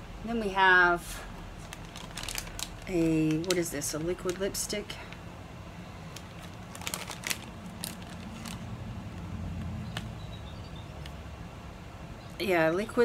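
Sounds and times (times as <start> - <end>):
steady low hum: 0.0 - 13.0
package clicks and taps: 9.6 - 10.1.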